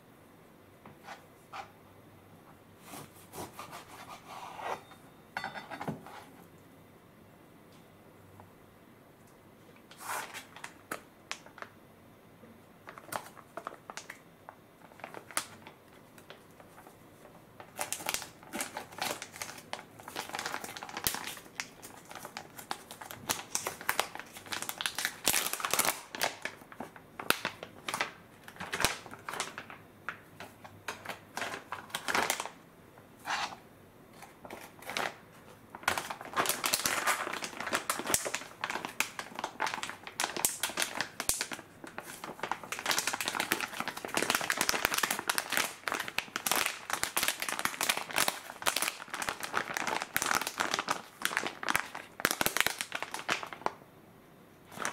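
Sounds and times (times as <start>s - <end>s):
plastic pouch crinkling: 12.8s - 14.2s, 14.8s - 32.6s, 34.2s - 53.8s, 54.7s - 54.9s.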